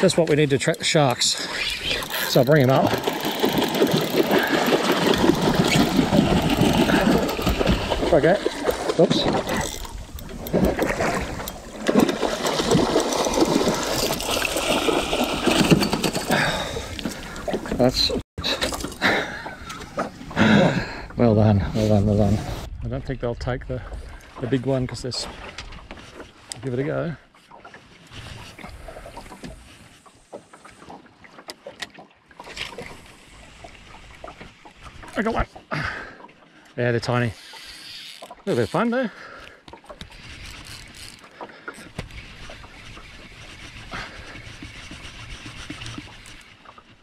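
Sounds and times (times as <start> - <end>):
fish thrashing in water: 1.4 - 17.6.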